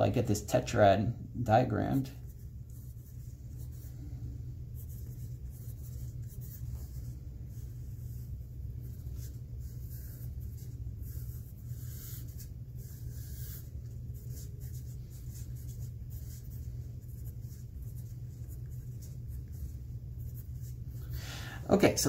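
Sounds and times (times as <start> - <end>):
pencil scratching on paper: 4.8 - 21.1.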